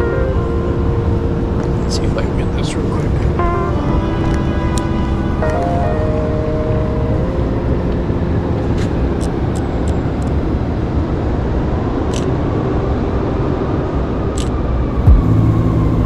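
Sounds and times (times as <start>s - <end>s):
passing cars rumble: 0.0s - 16.0s.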